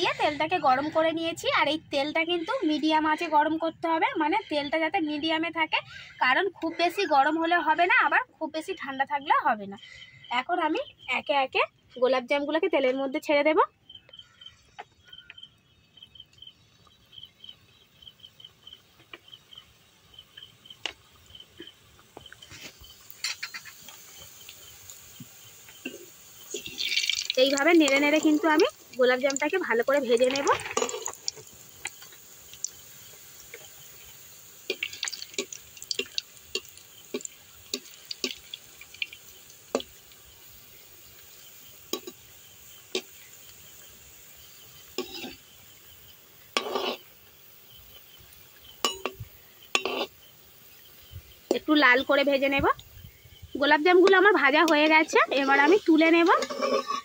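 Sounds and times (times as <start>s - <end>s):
dough balls frying in oil: 0.0s - 57.0s
sharp clicks and pops: 21.6s - 32.9s, 34.7s - 40.2s.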